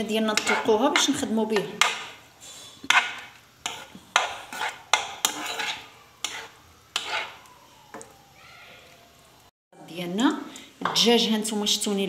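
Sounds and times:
metal spatula scraping frying pan: 0:00.1 - 0:07.4.

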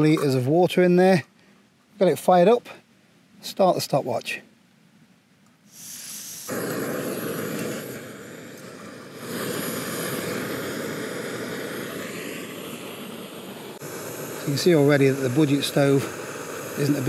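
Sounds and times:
gas stove burner roaring: 0:05.7 - 0:17.0.

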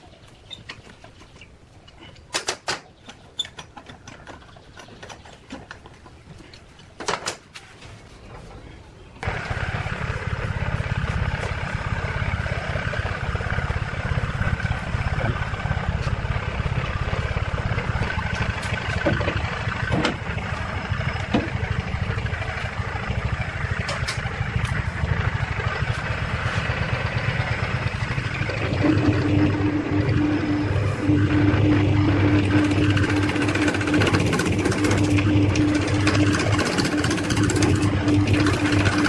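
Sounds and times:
lathe motor humming: 0:09.2 - 0:39.0
mechanical running noise: 0:09.2 - 0:39.0.

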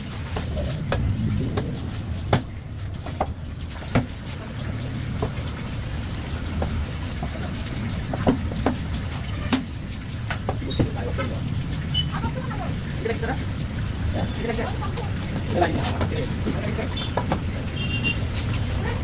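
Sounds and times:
low rumble: 0:00.0 - 0:03.5.

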